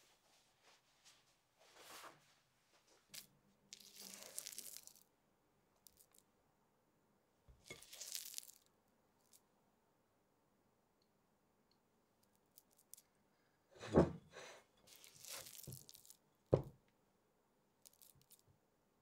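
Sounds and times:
cloth rustle: 0.0 - 3.1.

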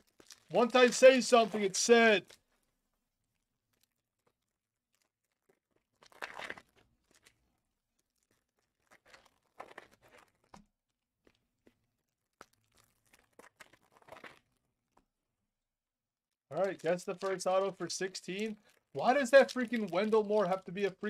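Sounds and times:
card pack wrappers crinkling: 0.0 - 2.4, 16.5 - 21.0.

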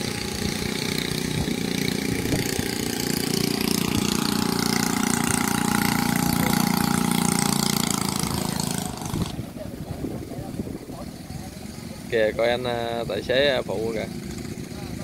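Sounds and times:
excavator diesel engine running: 0.0 - 9.7.

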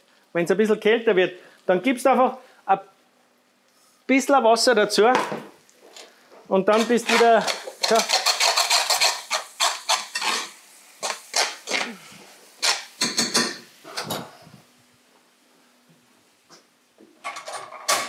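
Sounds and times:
metal spoon scraping frying pan: 6.7 - 11.9, 12.6 - 13.7.

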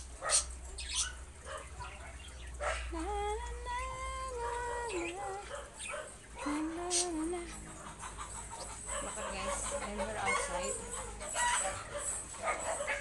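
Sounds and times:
puppy yelping: 10.2 - 13.0.

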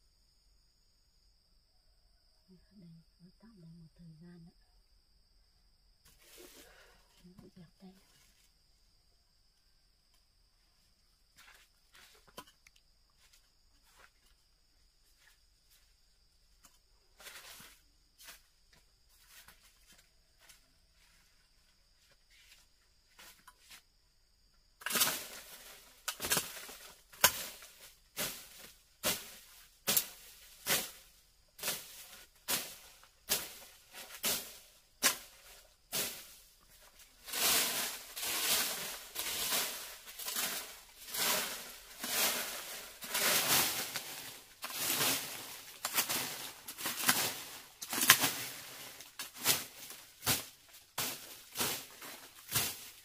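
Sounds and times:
scraping strokes: 37.2 - 53.0.

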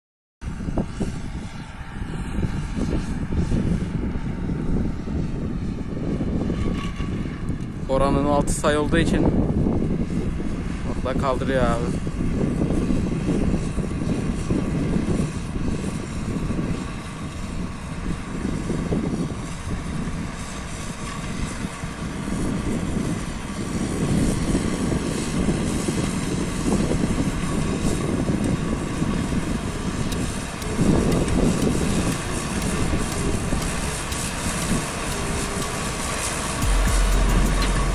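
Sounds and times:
tractor diesel engine running: 21.7 - 37.9.

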